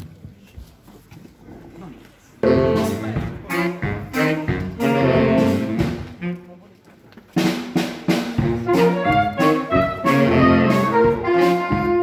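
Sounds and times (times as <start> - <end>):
drums: 2.3 - 12.0
saxophone band playing: 2.4 - 6.8, 7.4 - 12.0.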